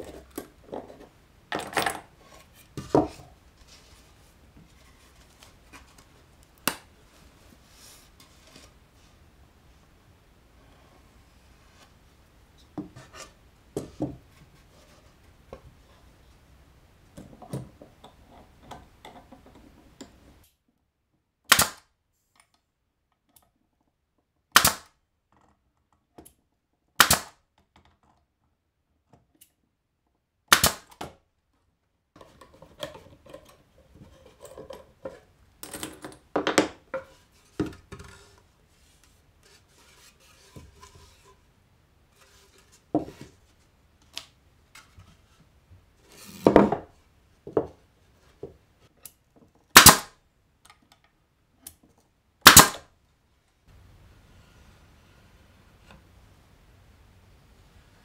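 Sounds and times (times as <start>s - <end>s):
plywood and clamps handled: 0.0s - 8.9s, 32.2s - 41.5s
nail gun firing: 21.5s - 21.8s, 24.5s - 24.9s, 27.0s - 27.4s, 30.5s - 31.0s, 49.8s - 50.1s, 52.4s - 52.8s.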